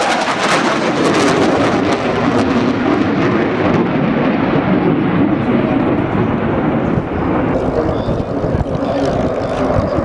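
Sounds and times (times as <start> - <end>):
jet roar with crackling: 0.0 - 10.0.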